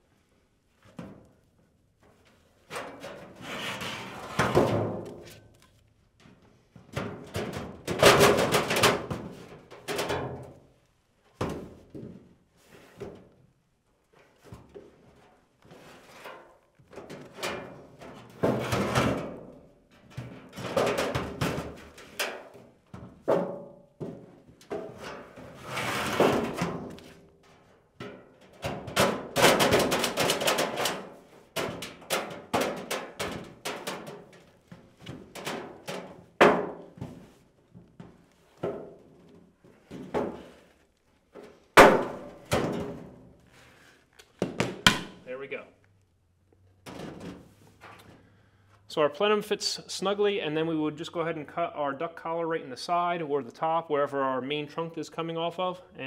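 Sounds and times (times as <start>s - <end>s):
sheet metal rattling and clanking: 6.9s - 10.6s, 16.9s - 23.8s, 24.6s - 36.9s.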